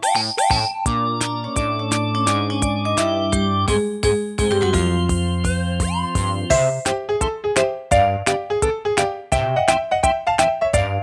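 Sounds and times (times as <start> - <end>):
keyboard notes over a steady beat: 0.0 - 11.0
upward-sliding notes: 4.4 - 7.0.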